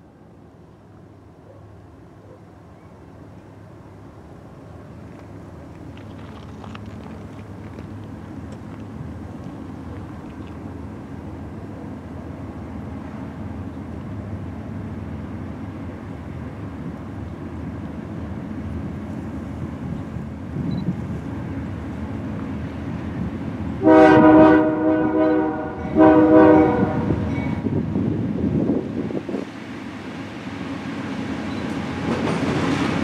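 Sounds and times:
diesel locomotive engine rumble: 0.0 - 33.0
locomotive air horn blasts: 23.8 - 27.6.

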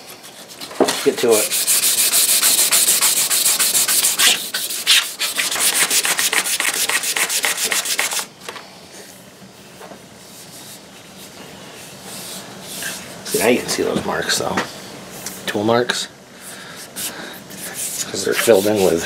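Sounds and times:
sandpaper rubbing on wood: 0.3 - 8.3, 17.0 - 19.0.

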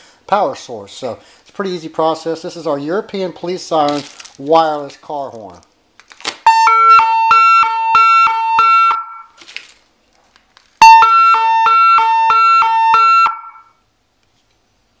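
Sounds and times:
two-tone police siren: 6.5 - 9.4, 10.8 - 13.8.

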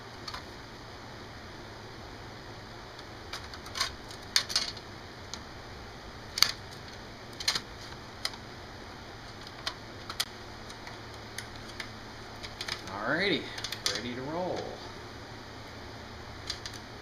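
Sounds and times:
faint steady hum: 0.0 - 17.0
hard drive parts clicking: 3.0 - 5.5, 6.3 - 8.5, 9.2 - 12.9, 13.5 - 14.7, 16.4 - 16.9.

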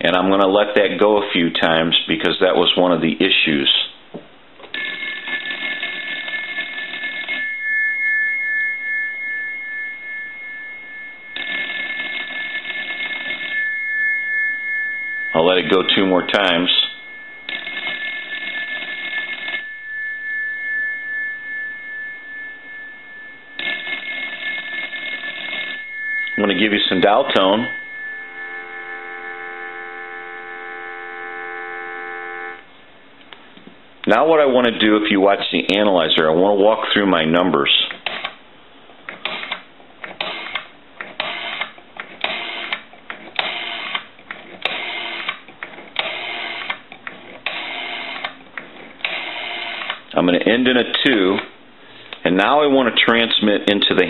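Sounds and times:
telephone bell rattle: 4.7 - 7.6, 9.1 - 13.6, 15.3 - 19.8, 22.2 - 31.6, 47.5 - 48.4
steady high tones: 4.8 - 32.7.

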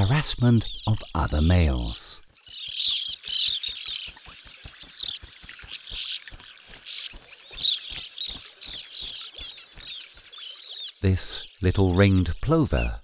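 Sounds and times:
birds twittering: 0.0 - 13.0.

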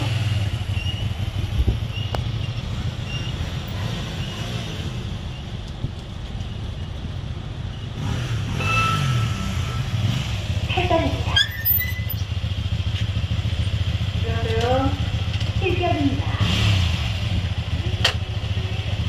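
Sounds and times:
motorcycle engine running: 0.0 - 19.0
wind noise on microphone: 1.2 - 2.1.

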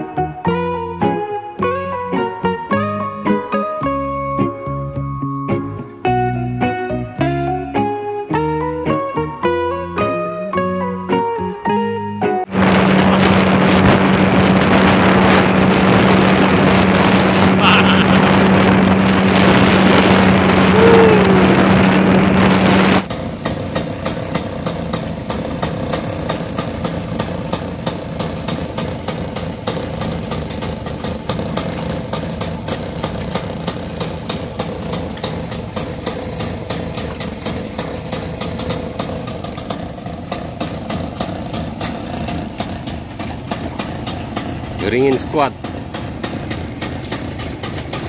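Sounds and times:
speedboat outboard running at speed: 0.0 - 6.0, 12.4 - 48.0
wind on microphone: 12.5 - 23.1
outboard motor idling: 12.5 - 48.0.

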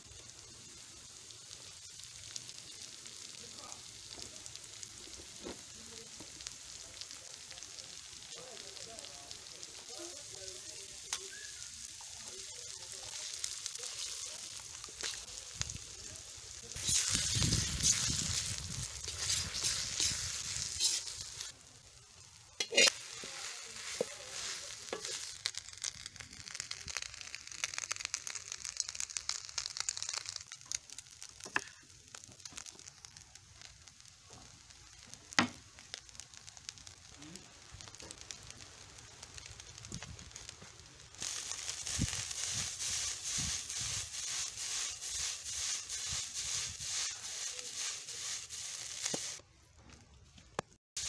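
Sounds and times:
food sizzling in oil: 0.0 - 49.4
spatula stirring in wok: 16.8 - 21.6, 22.6 - 33.2, 41.2 - 49.4.

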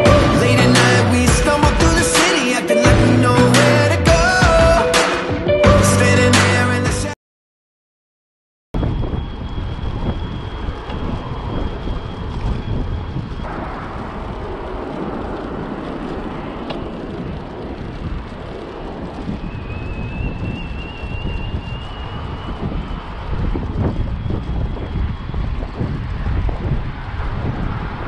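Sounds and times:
electric motor whine rising: 8.8 - 28.0
road rumble: 8.8 - 28.0
wind buffeting microphone: 8.8 - 28.0.

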